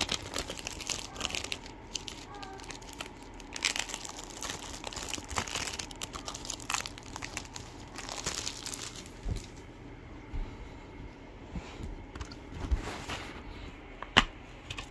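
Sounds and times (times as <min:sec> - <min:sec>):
crinkling and crackling clicks: 0:00.0 - 0:09.7.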